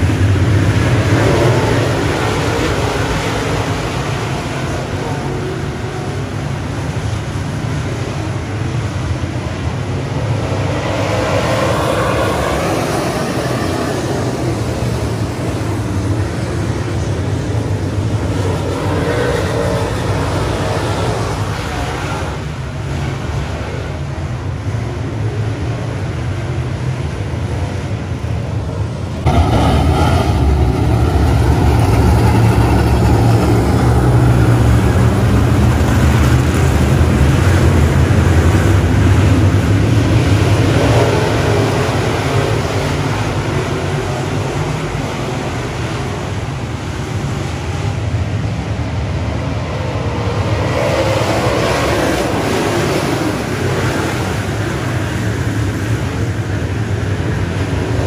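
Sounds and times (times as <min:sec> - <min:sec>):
race car engines rumbling: 0:00.0 - 0:58.0.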